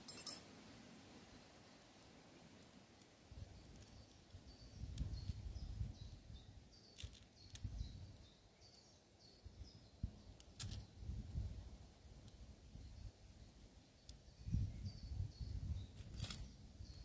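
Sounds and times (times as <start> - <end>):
bird chirping: 3.6 - 10.4
wind rumbling on microphone: 4.4 - 6.6, 7.4 - 8.3, 9.5 - 13.2, 14.4 - 17.0.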